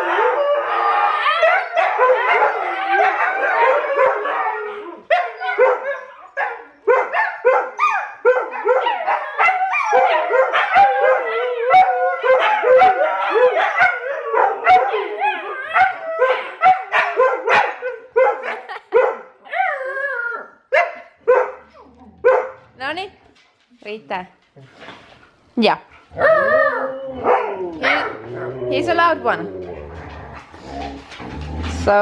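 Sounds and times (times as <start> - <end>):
dogs howling and yipping: 0.0 - 18.8, 19.5 - 20.6, 26.1 - 31.2.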